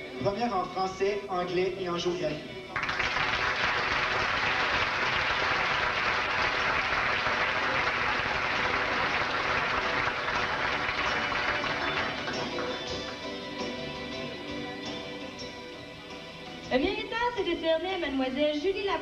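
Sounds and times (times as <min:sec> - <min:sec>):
audience applauding: 0:02.7 - 0:13.9.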